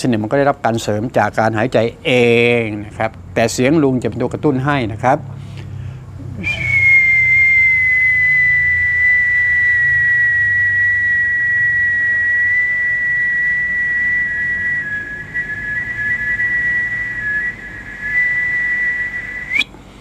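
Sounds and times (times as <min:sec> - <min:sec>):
man whistling high note: 0:06.4 - 0:19.8.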